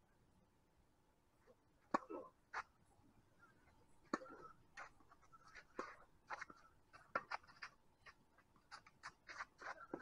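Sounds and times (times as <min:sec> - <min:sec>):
shoe scuffs on court: 0:05.5 - 0:10.0.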